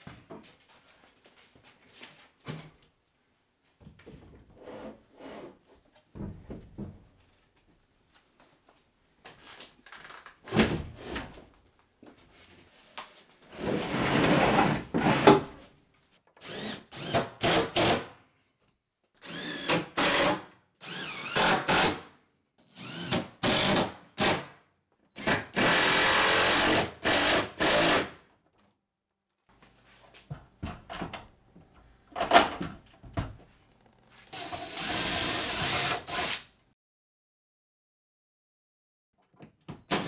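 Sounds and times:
power drill running: 16.4s - 17.2s, 19.2s - 21.6s, 22.7s - 23.7s, 34.3s - 36.5s.

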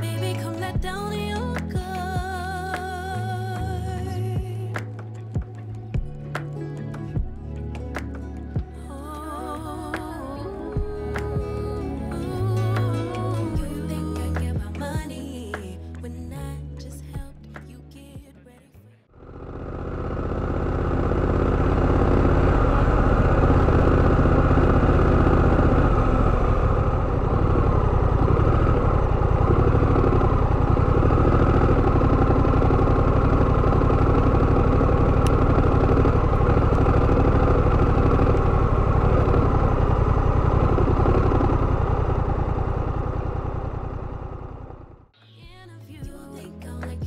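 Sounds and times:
motorcycle engine running: 0.0s - 2.9s, 7.2s - 15.1s, 19.2s - 45.1s.

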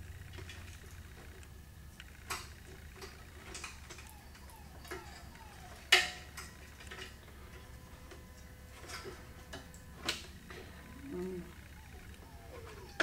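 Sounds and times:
faint squeaks: 10.4s - 13.0s.

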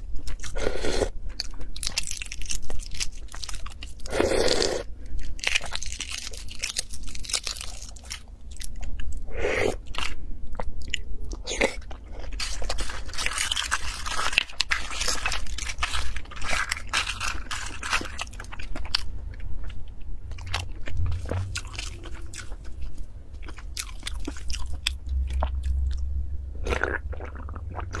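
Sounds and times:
crunchy chewing: 0.0s - 26.0s
eggshells cracking and peeling: 1.3s - 4.1s, 5.2s - 9.2s, 12.3s - 19.1s.

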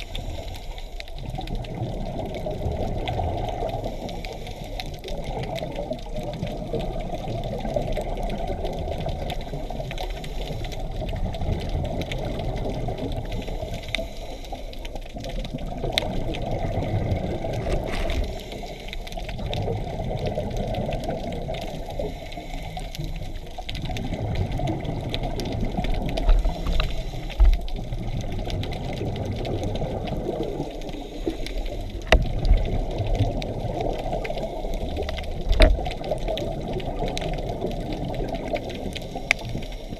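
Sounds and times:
scuba regulator bubbles gurgling: 0.0s - 39.9s.

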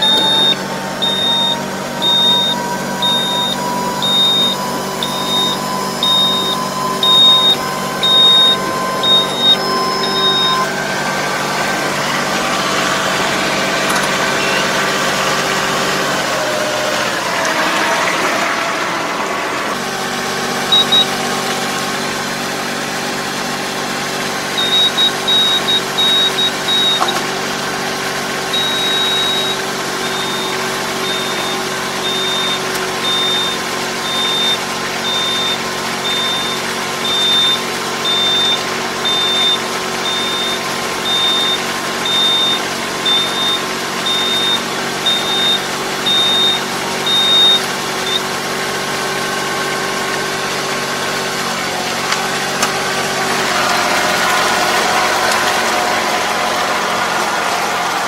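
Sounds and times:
electronic warning beeps: 0.0s - 15.3s, 20.7s - 21.2s, 24.6s - 27.2s, 28.5s - 48.3s
tractor engine running: 0.0s - 58.0s.

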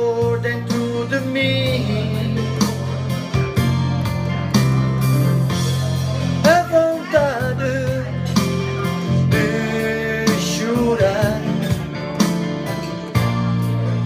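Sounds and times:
man singing into a microphone: 0.0s - 3.3s, 6.2s - 12.1s
guitar accompaniment: 0.0s - 14.0s.

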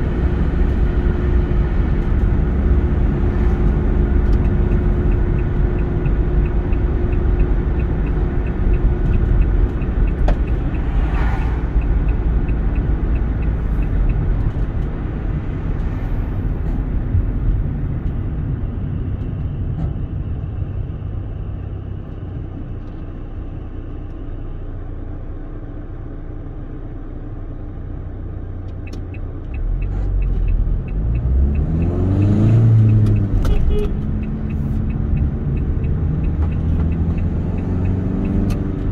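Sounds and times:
car engine and tyre rumble: 0.0s - 38.9s
light regular ticking: 2.0s - 15.2s, 28.7s - 38.9s.

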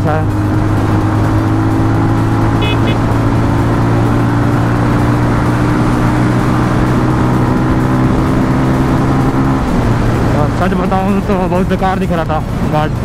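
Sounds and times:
motorcycle engine running: 0.0s - 12.9s
short high beeps: 2.6s - 3.0s.

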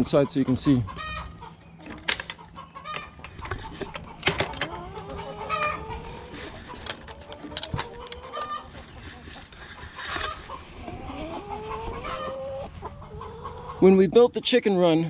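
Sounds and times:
chickens clucking: 0.0s - 14.4s
chicken drawn-out call: 4.1s - 13.8s.

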